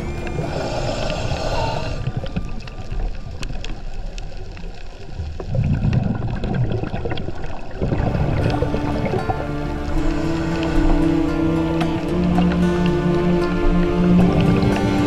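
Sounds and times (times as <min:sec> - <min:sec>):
faint clicks: 0:00.0 - 0:07.6
underwater bubbling: 0:00.0 - 0:15.0.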